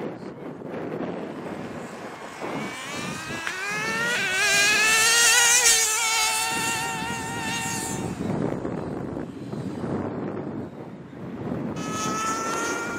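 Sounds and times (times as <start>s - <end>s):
rc car engine whining: 0.9s - 10.0s, 11.7s - 12.9s.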